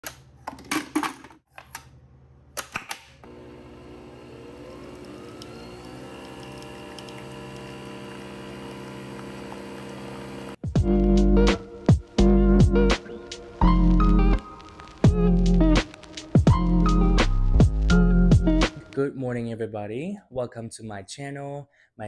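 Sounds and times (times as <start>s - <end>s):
coffee machine motor humming: 3.2s - 10.6s.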